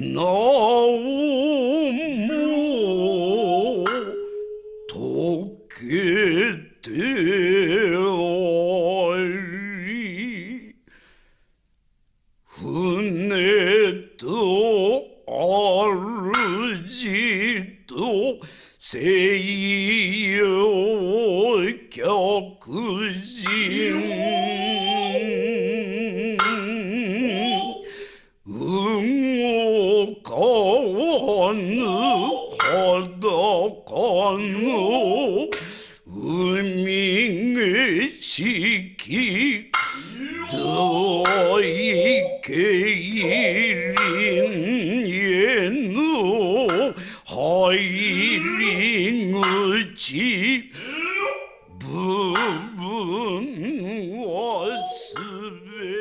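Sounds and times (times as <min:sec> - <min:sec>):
person singing with vibrato: 0:00.0 - 0:10.9, 0:12.5 - 0:56.0.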